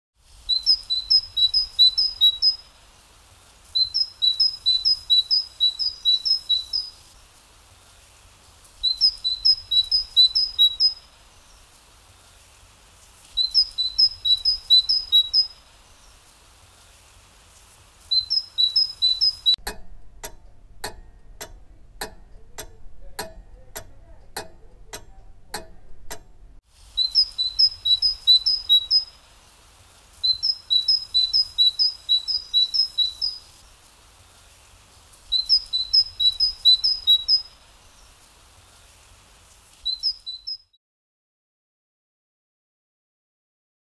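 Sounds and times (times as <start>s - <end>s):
great tit singing: 0.5s - 2.6s, 3.8s - 7.1s, 8.8s - 11.7s, 13.4s - 16.2s, 18.1s - 19.6s, 27.0s - 29.2s, 30.2s - 33.6s, 35.3s - 38.2s, 39.8s - 40.7s.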